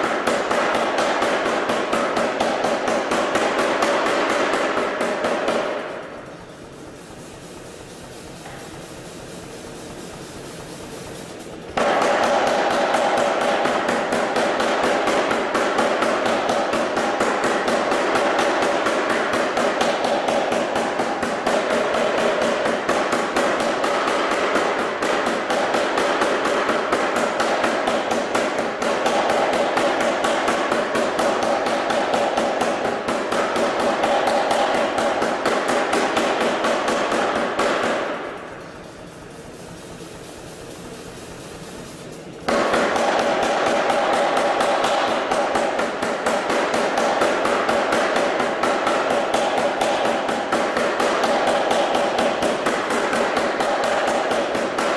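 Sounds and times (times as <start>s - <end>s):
power hammer striking hot steel: 0.0s - 54.9s.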